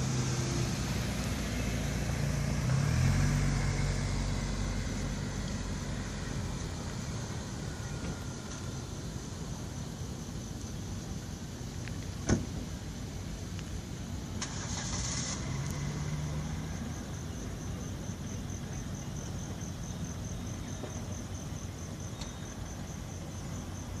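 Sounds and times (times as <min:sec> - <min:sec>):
traffic rumble: 0:00.0 - 0:24.0
brief hiss: 0:14.4 - 0:15.9.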